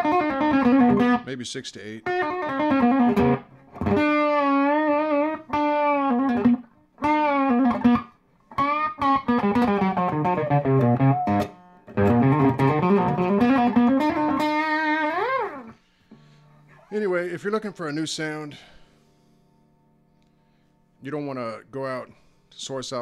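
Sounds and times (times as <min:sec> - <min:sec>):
electric guitar lead phrases: 0:00.0 - 0:16.8.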